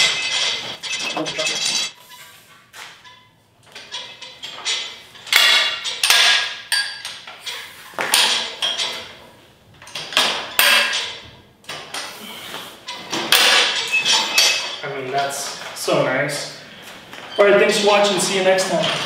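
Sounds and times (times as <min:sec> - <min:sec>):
metal arms clanking and rattling: 0:00.0 - 0:02.0, 0:02.9 - 0:09.2, 0:09.8 - 0:12.1, 0:12.8 - 0:15.8.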